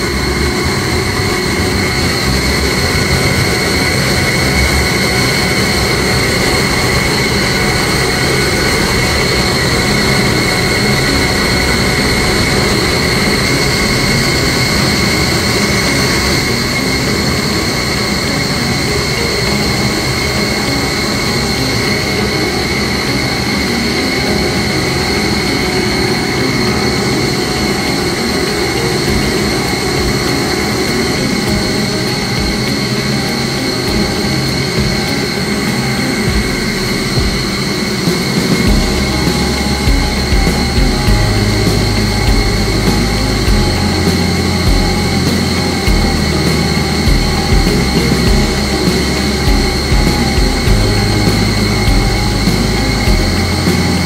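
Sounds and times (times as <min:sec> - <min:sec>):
machinery drone with high whine: 0:00.0 - 0:54.0.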